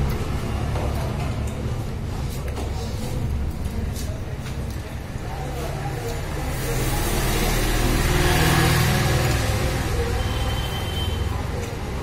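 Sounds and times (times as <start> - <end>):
vehicle passing by: 5.4 - 12.0.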